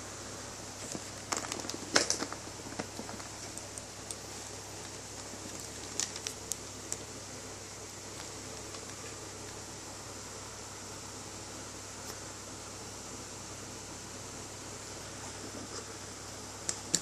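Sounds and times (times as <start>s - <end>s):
steady background hiss: 0.0s - 17.0s
plastic sleeve crinkling: 0.8s - 7.2s, 8.0s - 9.6s.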